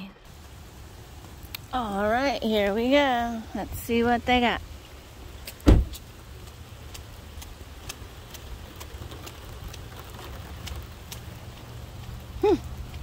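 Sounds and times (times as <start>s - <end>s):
light rain on wet pavement: 0.0s - 13.0s.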